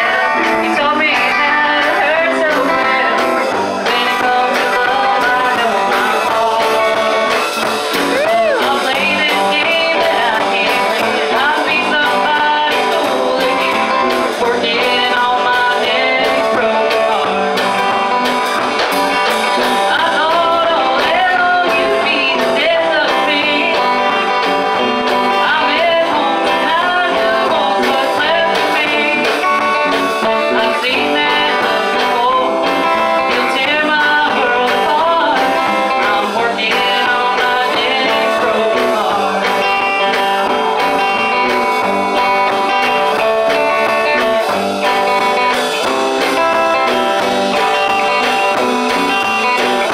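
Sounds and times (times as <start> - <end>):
woman singing: 0.0 - 17.5, 19.7 - 24.4, 25.3 - 40.2, 42.8 - 44.6
bass: 0.0 - 49.9
drums: 0.0 - 49.9
electric guitar: 0.0 - 49.9.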